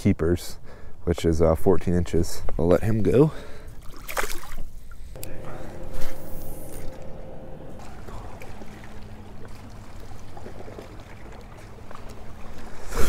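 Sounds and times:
water lapping against boat: 3.4 - 5.1, 7.0 - 13.0
faint steady hum: 4.7 - 12.9.

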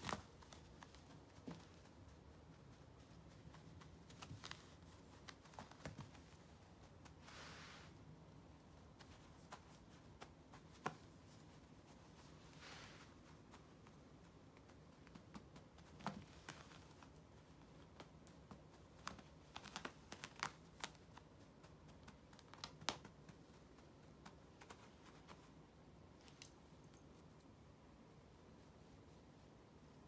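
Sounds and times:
cat toy flicking on carpet: 0.0 - 7.3, 8.8 - 11.6, 13.0 - 25.5.

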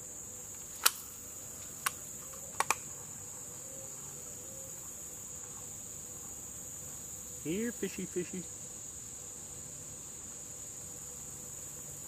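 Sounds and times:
insects droning: 0.0 - 12.0
sharp clicks: 0.8 - 1.1, 1.8 - 2.9.

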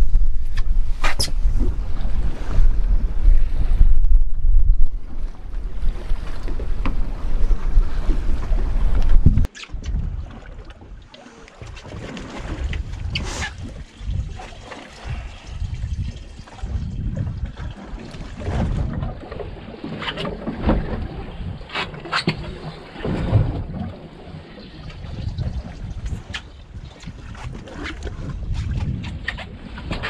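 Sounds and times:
wind buffeting microphone: 0.0 - 11.0, 11.6 - 19.8, 20.4 - 30.0
water splashing against boat hull: 0.0 - 30.0.

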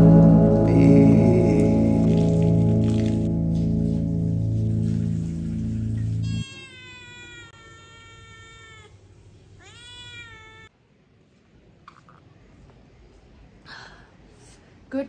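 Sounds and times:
music: 0.0 - 6.4
cat meowing: 6.2 - 9.0, 9.6 - 10.7.

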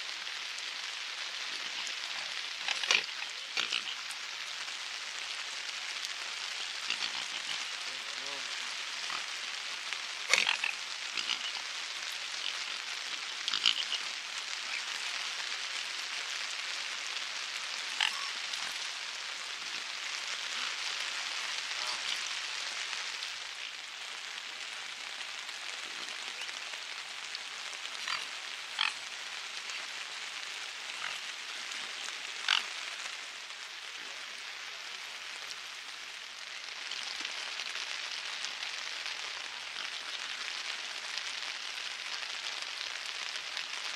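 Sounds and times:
rain falling on water: 0.0 - 43.9
swans and ducks calling: 1.6 - 4.2, 6.7 - 9.4, 10.2 - 15.2, 17.8 - 22.6, 27.8 - 30.0, 30.7 - 32.9.

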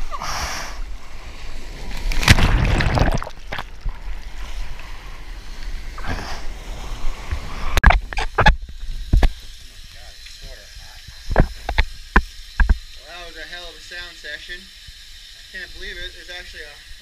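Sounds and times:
surf water splashing: 0.0 - 8.7
rush of water: 0.0 - 8.8.

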